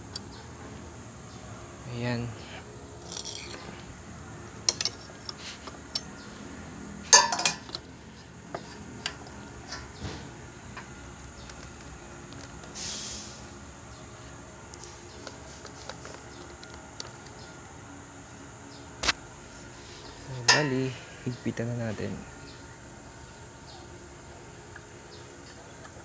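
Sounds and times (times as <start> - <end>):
metal parts clinking: 3.0 - 3.8, 4.6 - 6.1, 7.1 - 7.8.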